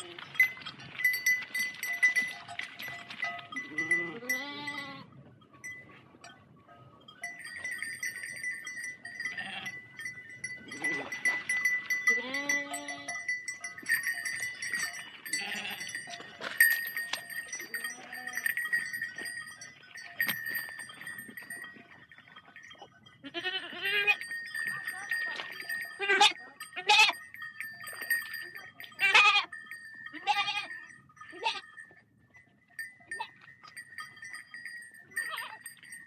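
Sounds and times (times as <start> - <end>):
sheep bells ringing and clanking: 0.0 - 36.0
sheep bleating: 3.8 - 5.1, 12.1 - 13.2, 15.3 - 15.9, 23.2 - 24.2, 30.1 - 30.8.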